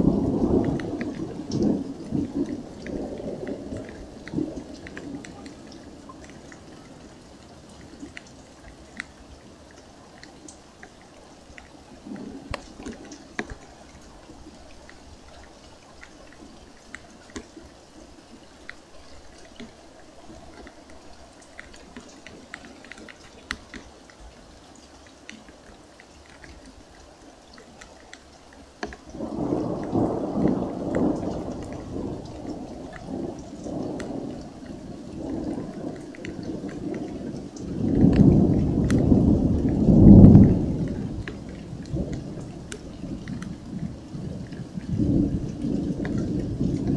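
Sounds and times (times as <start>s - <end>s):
rolling thunder: 0.0s - 7.0s, 29.2s - 46.9s
light rain dripping: 0.0s - 46.9s.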